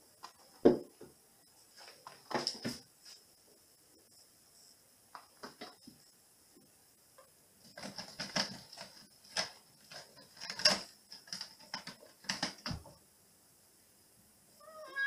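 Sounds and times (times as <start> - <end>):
cat claws scratching a post: 7.7 - 12.7.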